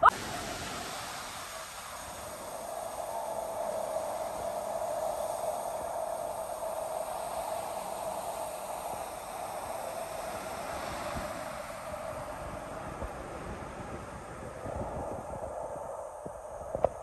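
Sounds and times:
waterfall rushing into pool: 0.0s - 12.8s.

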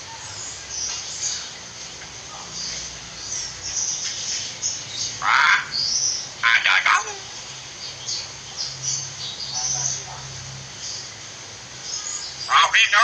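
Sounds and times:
small birds chirping: 0.0s - 13.0s
myna calling loudly: 5.2s - 5.8s, 6.4s - 7.4s, 11.9s - 13.0s.

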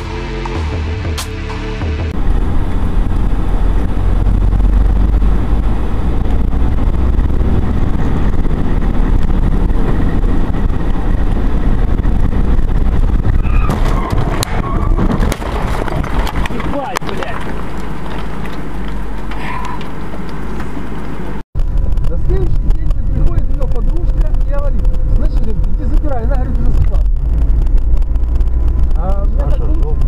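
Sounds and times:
car road noise rumble: 0.0s - 30.0s
sharp knocks and clatter: 12.7s - 21.2s.

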